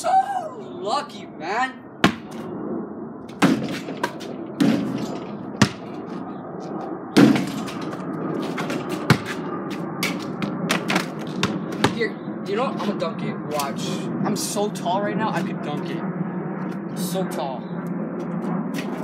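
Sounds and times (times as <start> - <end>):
basketball bouncing: 2.0 - 2.3, 5.6 - 6.0, 7.2 - 7.8, 8.4 - 9.4, 10.0 - 12.0.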